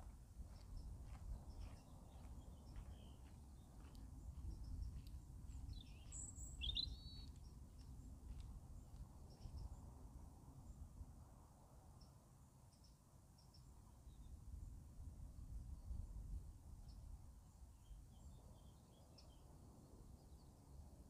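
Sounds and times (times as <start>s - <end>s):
bird chirps: 0.8s - 7.6s.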